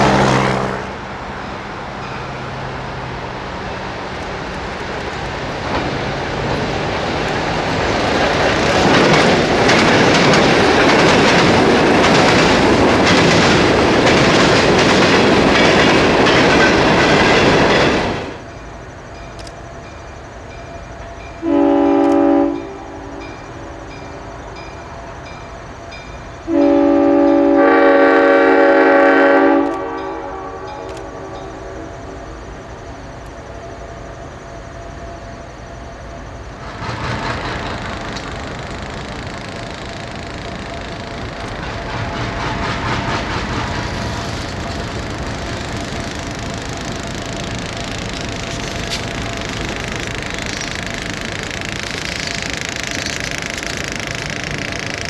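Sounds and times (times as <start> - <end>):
freight train rumbling past: 0.0 - 55.0
wheels clicking over rail joints: 3.5 - 21.4, 36.6 - 55.0
locomotive horn chord: 21.4 - 23.2, 26.5 - 31.9.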